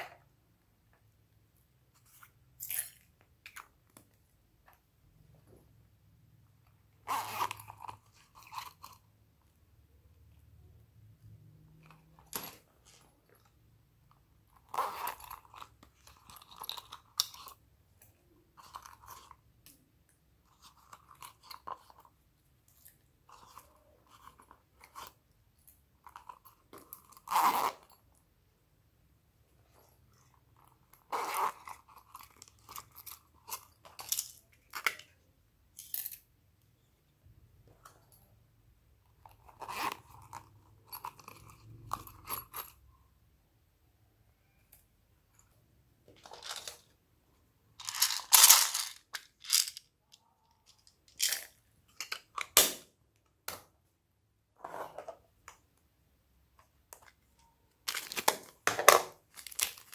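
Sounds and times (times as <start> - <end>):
plastic crinkling and rustling: 57.8 - 59.9.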